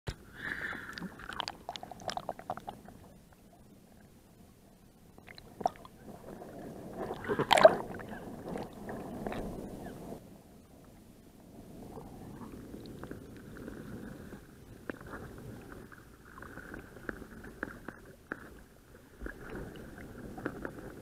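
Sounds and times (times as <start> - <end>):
water splashing and gurgling: 0.1 - 3.6, 5.2 - 10.2, 11.5 - 21.0
muffled underwater rush: 0.2 - 21.0.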